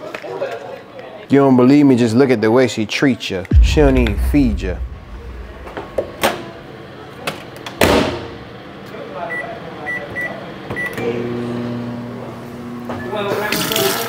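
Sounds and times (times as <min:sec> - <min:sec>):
sharp knock: 0:03.5 - 0:06.5.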